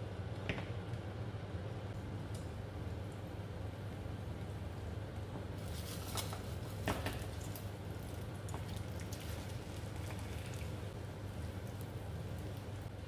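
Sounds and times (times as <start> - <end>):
steady low hum: 0.0 - 13.0
batter sizzling in a frying pan: 4.1 - 13.0.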